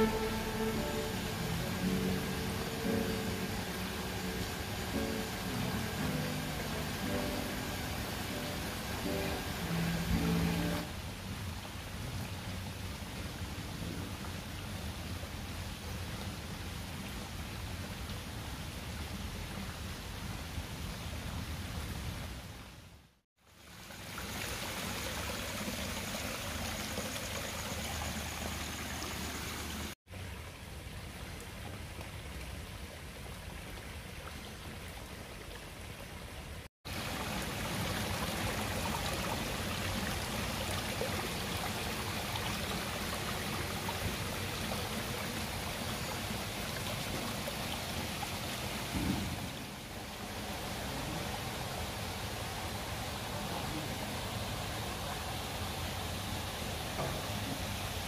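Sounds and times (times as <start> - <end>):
water splashing into a pond: 23.4 - 58.0.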